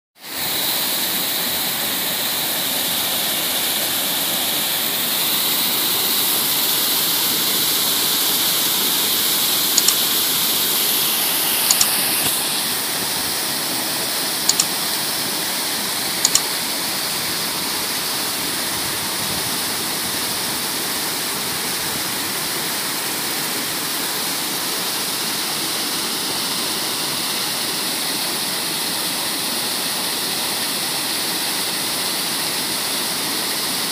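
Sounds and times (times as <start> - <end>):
water rushing from tank: 0.2 - 33.9
sharp clicks: 9.7 - 10.2, 11.2 - 12.4, 14.5 - 14.8, 16.2 - 16.5.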